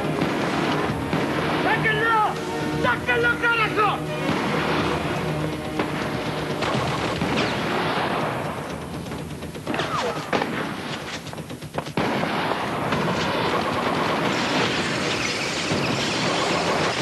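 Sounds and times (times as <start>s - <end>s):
rapid pistol shots: 0.0s - 1.9s, 4.2s - 5.0s, 5.7s - 8.5s, 9.7s - 17.0s.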